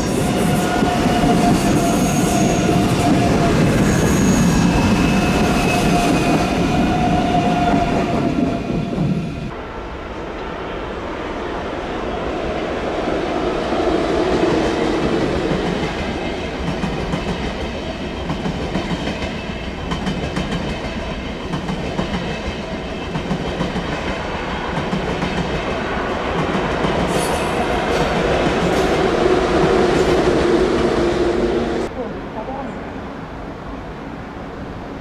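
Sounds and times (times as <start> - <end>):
train wheels rumbling on rails: 0.0 - 31.9.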